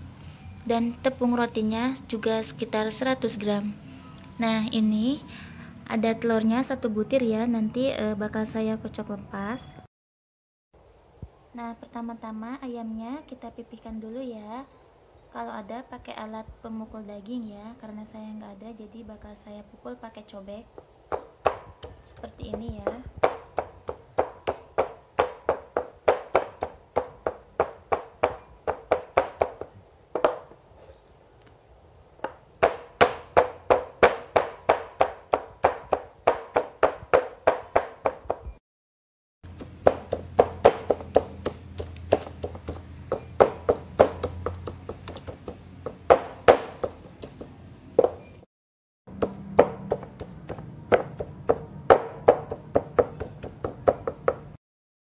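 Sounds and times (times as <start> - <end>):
stone pounding meat on wooden board: 20.8 - 30.6, 32.2 - 38.6, 39.5 - 48.3, 49.1 - 54.6.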